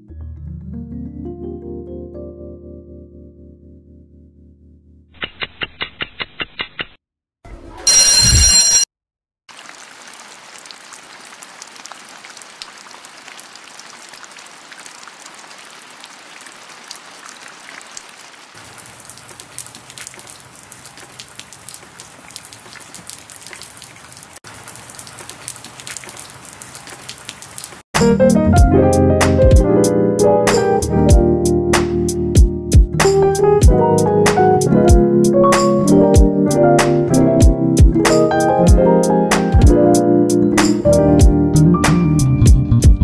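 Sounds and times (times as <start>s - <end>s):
loud electronic tone: 7.9s - 8.8s
heavy rain falling: 9.5s - 27.8s.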